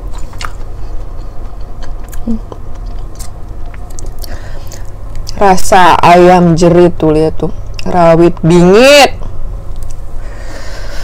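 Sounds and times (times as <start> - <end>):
chewing noodles: 0.0 - 5.4
steady low hum: 0.0 - 11.0.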